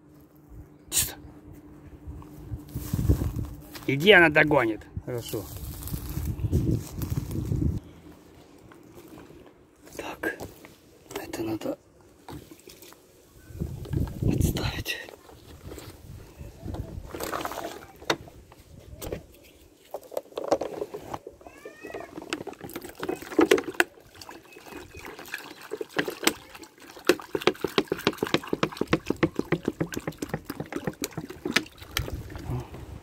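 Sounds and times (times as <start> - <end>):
water pouring into plastic bowl: 21.8 - 32.6
bottle glugging: 22.1 - 26.4.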